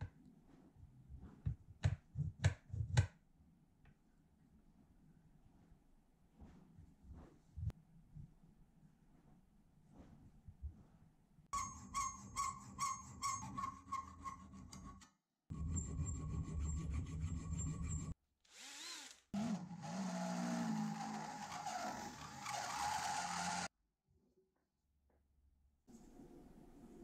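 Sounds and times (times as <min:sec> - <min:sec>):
file rasping on metal: 0:11.6 - 0:15.0
cordless drill boring metal: 0:18.5 - 0:23.7.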